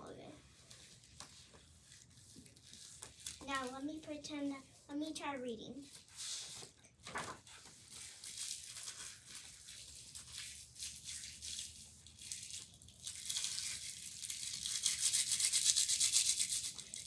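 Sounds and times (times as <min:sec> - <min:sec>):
paper pages rustling: 0:00.4 - 0:04.6, 0:05.8 - 0:12.6.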